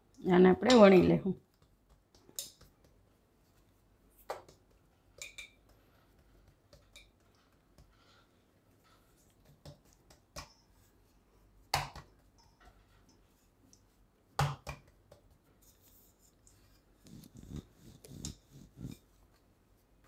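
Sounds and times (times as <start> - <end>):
dough patted by hand on board: 1.5 - 3.1, 4.2 - 4.9, 9.3 - 10.5, 11.6 - 12.3, 14.3 - 15.5
wooden rolling pin rubbing and knocking: 14.4 - 19.3.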